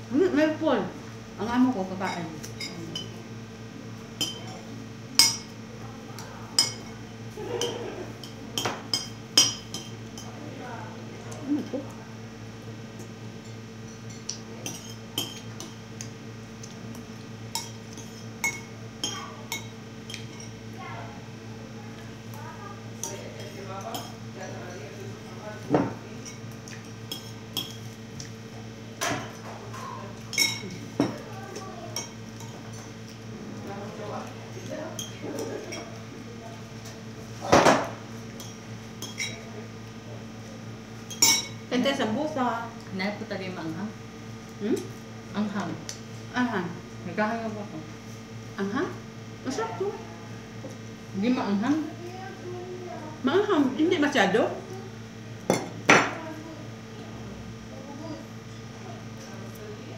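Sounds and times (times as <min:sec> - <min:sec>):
cutlery clinking against plate: 0:04.2 - 0:04.6, 0:05.2 - 0:05.5, 0:06.6 - 0:07.0, 0:07.6 - 0:10.3, 0:13.4 - 0:15.8, 0:17.5 - 0:20.6, 0:29.0 - 0:31.2, 0:37.5 - 0:39.4, 0:41.1 - 0:41.6.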